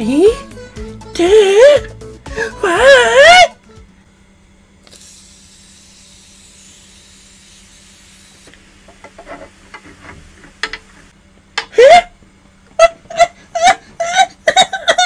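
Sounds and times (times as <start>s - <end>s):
aerosol can spraying: 4.8s - 9.9s.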